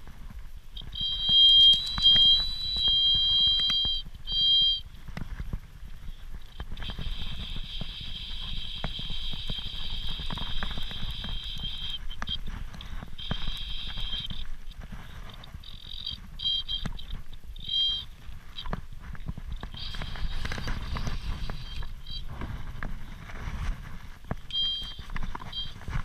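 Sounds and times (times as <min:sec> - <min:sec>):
wind on microphone: 0:00.0 - 0:26.0
fishing reel whirring: 0:01.0 - 0:04.8.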